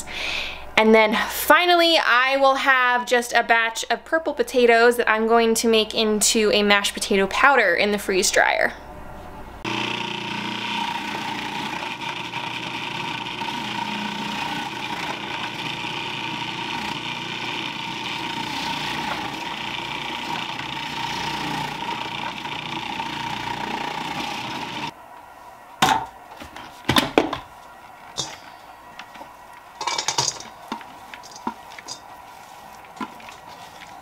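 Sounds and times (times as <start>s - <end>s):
food processor grating potatoes: 9.7s - 24.9s.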